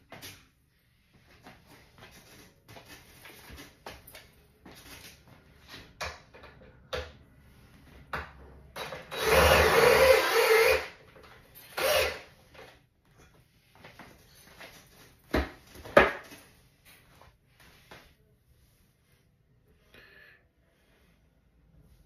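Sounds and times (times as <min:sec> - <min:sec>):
cordless drill running into wood: 0:09.1 - 0:11.0, 0:11.8 - 0:12.3.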